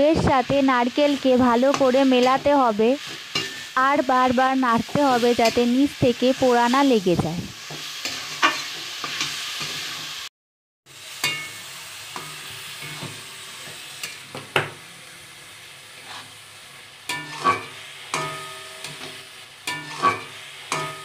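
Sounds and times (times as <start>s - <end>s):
soft sizzle: 0.0s - 10.3s, 10.9s - 21.0s
spatula scraping metal pan: 7.7s - 9.8s, 17.1s - 21.0s.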